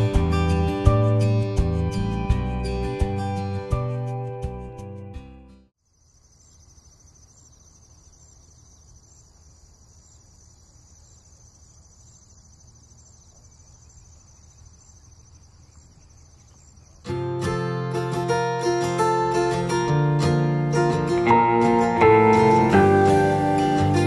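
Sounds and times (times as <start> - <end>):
background music: 0.0 - 5.6, 17.2 - 24.0
crickets chirping: 5.8 - 20.0, 20.6 - 24.0.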